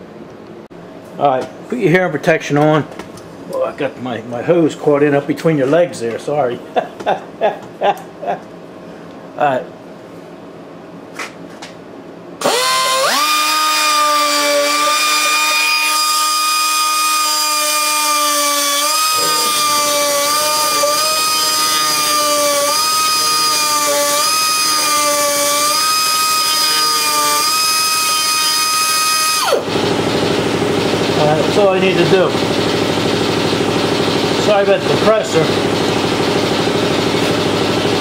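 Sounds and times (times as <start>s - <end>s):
die grinder whining: 12.4s - 38.0s.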